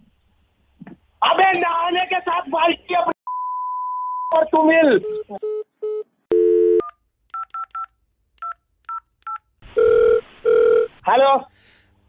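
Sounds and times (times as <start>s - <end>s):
buzzy telephone tone: 6.3s - 6.8s, 9.8s - 10.9s
telephone ringback tones: 9.8s - 10.9s.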